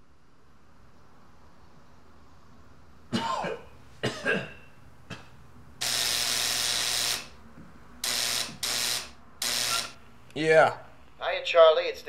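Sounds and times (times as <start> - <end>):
intercom door buzzer: 5.8 - 7.4, 8.0 - 10.0.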